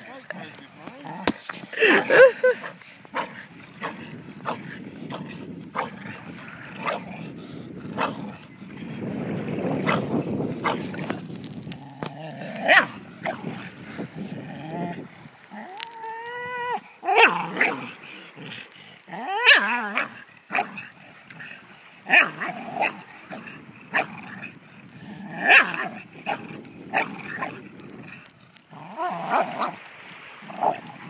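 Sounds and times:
dog barking: 12.7s - 12.9s, 25.5s - 25.7s.

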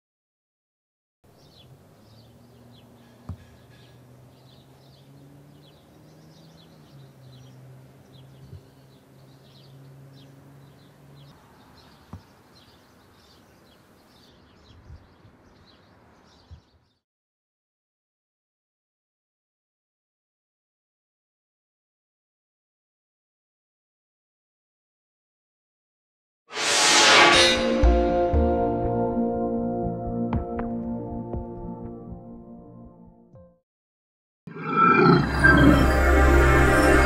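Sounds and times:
small birds chirping: 1.3s - 17.0s.

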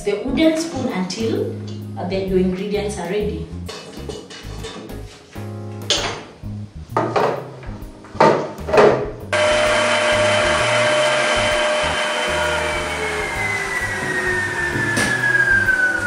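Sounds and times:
stand mixer motor whining: 9.4s - 16.0s.

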